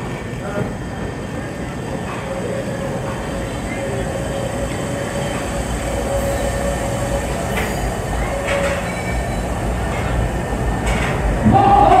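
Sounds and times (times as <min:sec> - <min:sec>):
thin steady whine: 0:00.0 - 0:11.9
train rumbling: 0:00.0 - 0:12.0.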